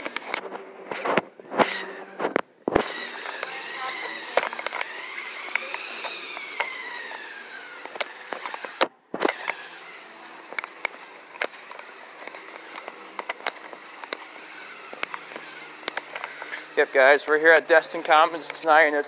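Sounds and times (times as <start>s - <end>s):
toy car motor whining: 2.8s - 19.0s
sharp clicks: 4.3s - 9.6s, 14.9s - 16.6s.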